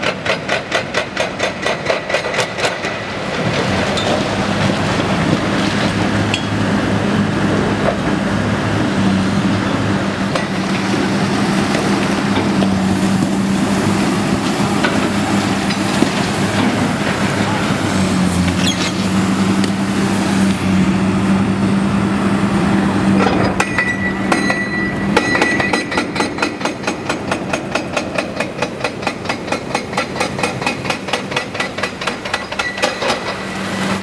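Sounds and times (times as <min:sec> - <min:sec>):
hydraulic breaker pounding concrete: 0:23.2 - 0:34.0.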